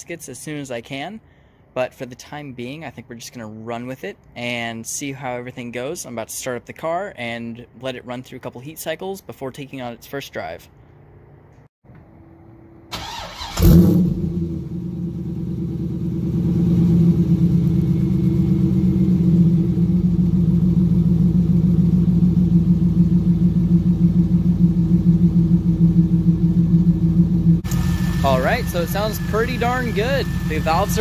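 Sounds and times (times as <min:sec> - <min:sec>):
car engine idling: 0:12.9 - 0:31.0
starter cranking engine: 0:13.0 - 0:14.0, 0:27.6 - 0:31.0.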